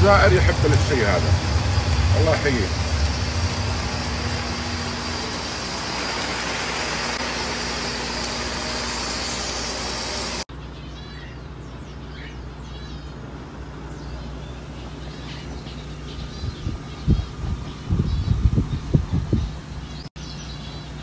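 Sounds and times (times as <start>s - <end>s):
sparrows chirping: 0.0s - 7.2s, 10.4s - 21.0s
low hum: 0.0s - 10.5s
spraying and falling water hiss: 0.0s - 10.5s.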